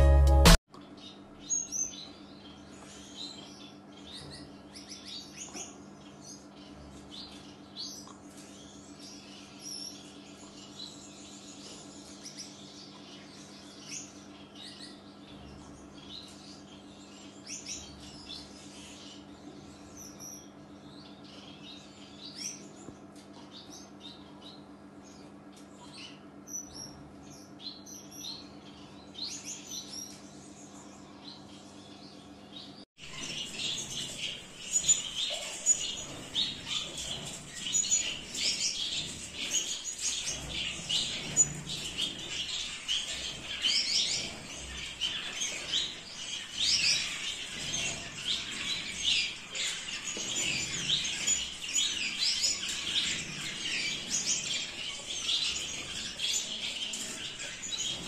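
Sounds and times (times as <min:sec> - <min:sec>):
finches chirping: 0:23.5 - 0:58.0.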